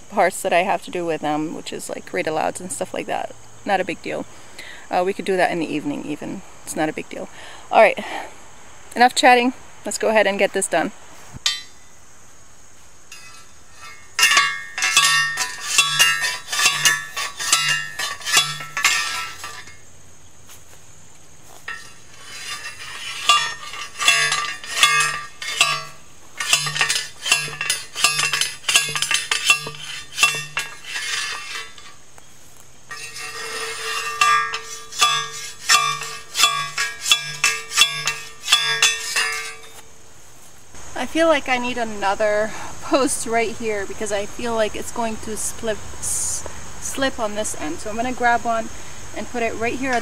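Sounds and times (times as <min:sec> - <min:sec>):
post driver clanging on metal: 0:11.4 - 0:11.9, 0:13.1 - 0:19.8, 0:21.6 - 0:32.0, 0:32.9 - 0:39.9.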